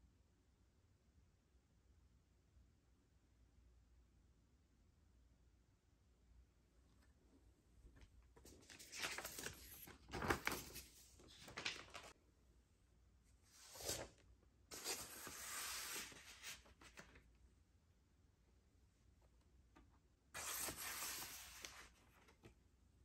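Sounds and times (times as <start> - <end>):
record sleeves rustling: 8.4 - 12.1, 13.5 - 17.2, 20.4 - 22.5.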